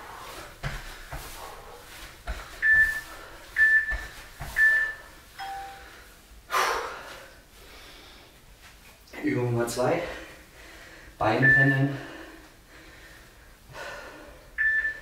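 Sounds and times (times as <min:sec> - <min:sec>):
timer beeps: 0:02.6 - 0:03.0, 0:03.6 - 0:05.9, 0:11.4 - 0:11.8, 0:14.6 - 0:15.0.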